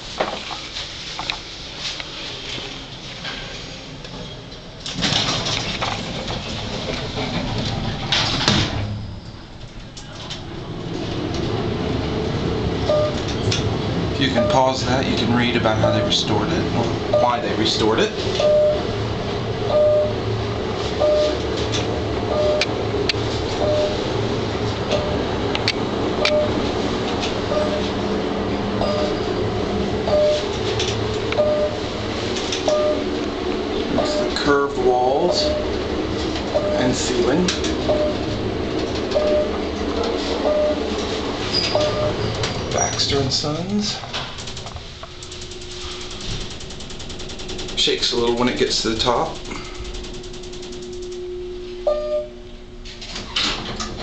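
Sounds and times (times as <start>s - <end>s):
elevator rumble: 0.0s - 54.0s
brief short tone: 41.5s - 43.0s, 50.8s - 52.4s.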